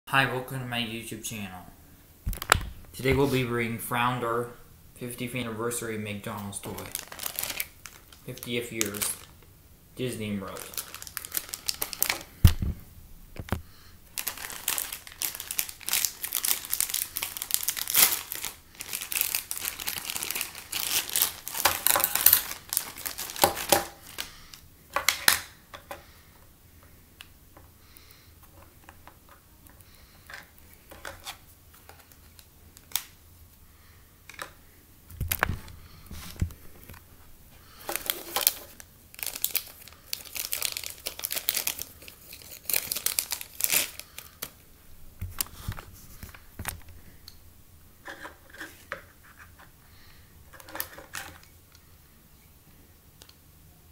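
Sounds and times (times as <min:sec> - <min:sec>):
plastic bag crinkling and tearing: 0:06.4 - 0:09.4, 0:10.2 - 0:12.7, 0:13.4 - 0:25.6, 0:37.7 - 0:44.6
low thump: 0:12.4 - 0:13.6.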